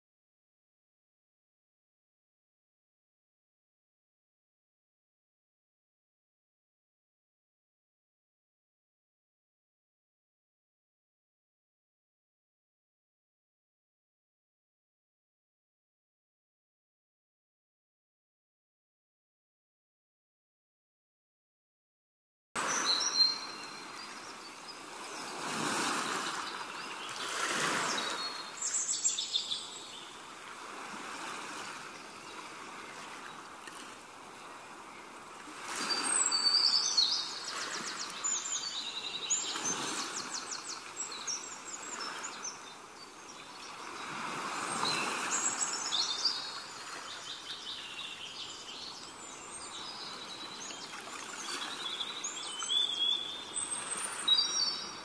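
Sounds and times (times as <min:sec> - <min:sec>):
small birds chirping: 0:35.8 - 0:55.0.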